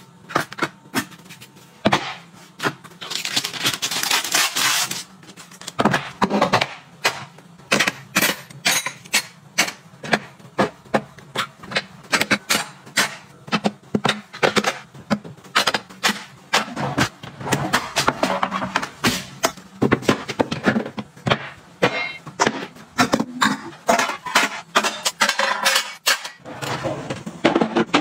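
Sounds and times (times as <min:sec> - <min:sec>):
kitchen utensils clattering: 0:15.5 - 0:28.0.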